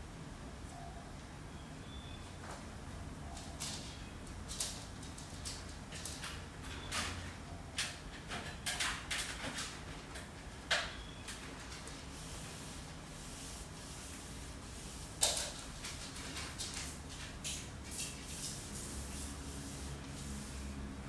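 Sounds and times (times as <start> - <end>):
cloth rubbing fan blades: 11.4 - 21.0.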